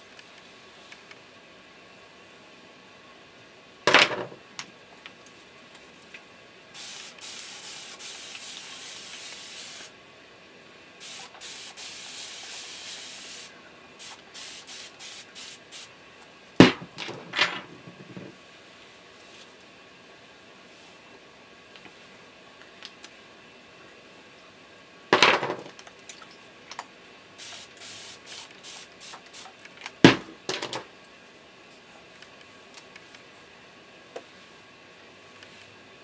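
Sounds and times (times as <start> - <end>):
spray bottle hissing: 6.8 - 9.9, 11.0 - 15.9, 27.4 - 29.6
spray bottle spritzes: 6.8 - 9.9, 11.0 - 15.9, 27.4 - 29.6.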